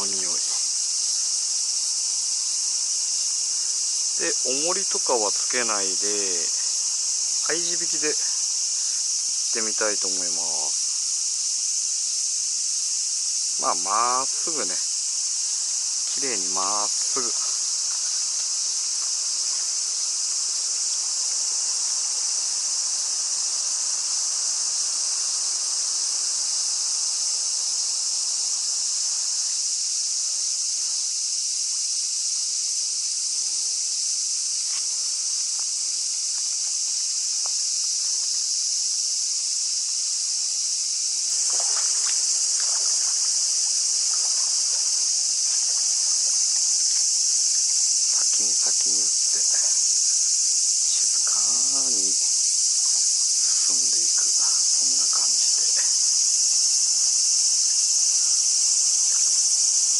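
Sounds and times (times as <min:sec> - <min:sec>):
cicadas chorus hissing: 0:00.0 - 0:59.9.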